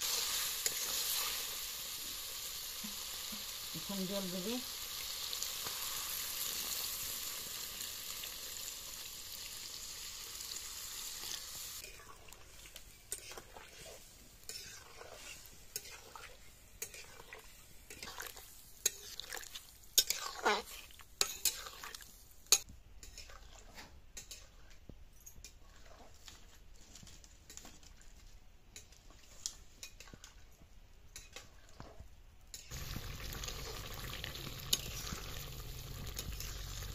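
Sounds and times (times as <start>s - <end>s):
water sizzling in hot pan: 0.0s - 24.3s, 32.5s - 36.9s
metal ladle scraping a pan: 11.2s - 24.8s, 33.8s - 35.4s.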